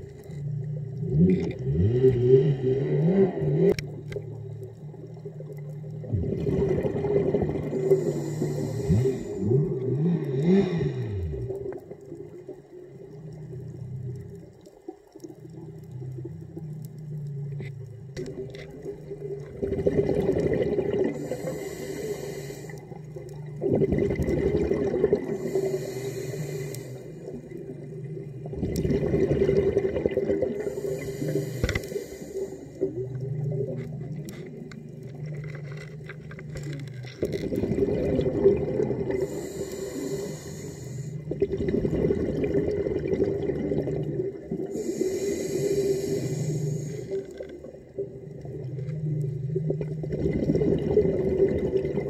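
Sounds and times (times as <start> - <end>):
exhaled bubbles underwater: 0.0 - 52.0
regulator inhale hiss: 7.6 - 11.7, 21.1 - 23.2, 25.3 - 27.5, 30.6 - 33.1, 39.1 - 41.4, 44.6 - 47.6.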